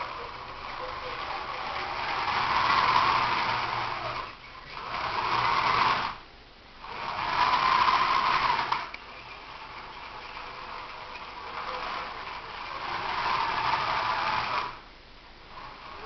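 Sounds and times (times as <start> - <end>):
small motors whirring: 0.0 - 14.9, 15.5 - 16.0.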